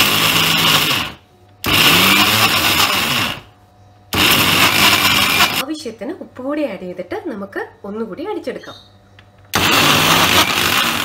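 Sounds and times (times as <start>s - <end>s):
electric mixer grinder grinding: 0.0s - 3.5s, 4.1s - 5.6s, 9.5s - 11.0s.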